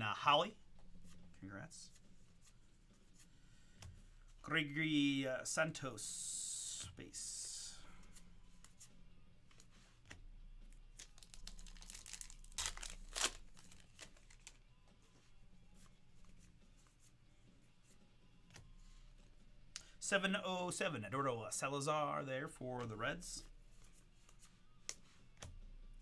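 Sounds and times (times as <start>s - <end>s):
trading cards flicking and rustling: 8.0s - 15.0s, 23.4s - 25.6s.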